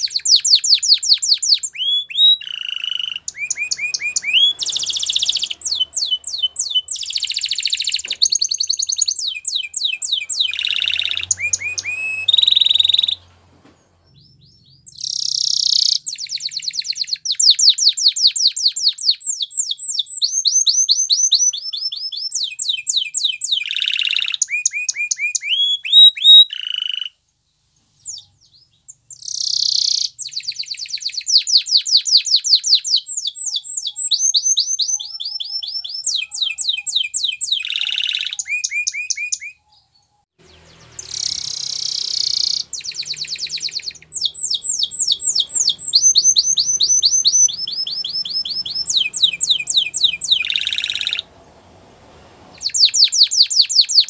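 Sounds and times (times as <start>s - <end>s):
canary singing trills: 0.0s - 27.2s, 27.9s - 54.0s.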